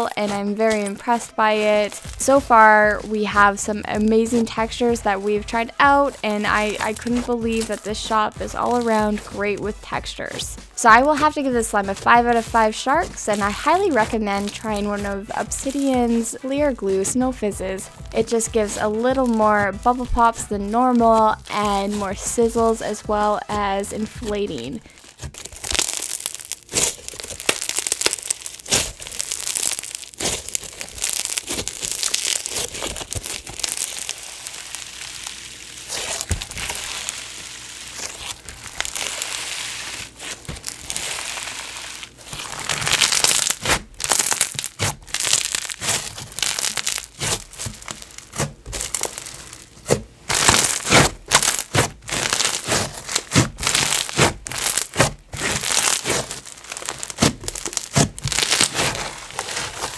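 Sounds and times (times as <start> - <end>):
slime crackling with bubble pops: 6.0 - 10.0, 10.9 - 16.2, 24.1 - 59.9.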